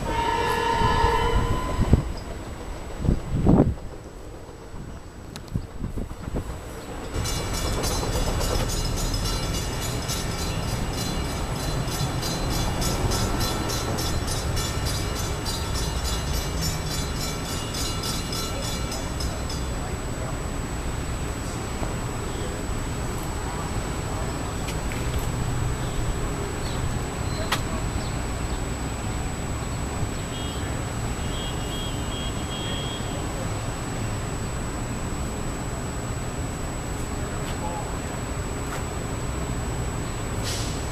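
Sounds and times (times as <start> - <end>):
electric train rumbling: 0.0 - 40.9
high-pitched pulsing: 7.2 - 24.6.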